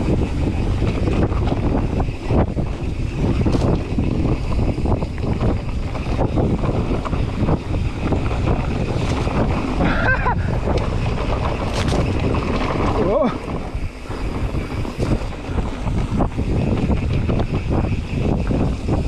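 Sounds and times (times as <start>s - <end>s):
bike knocks and rattles: 0.0s - 19.0s
wind buffeting microphone: 0.0s - 19.0s
tyre rumble on dirt: 3.2s - 17.6s.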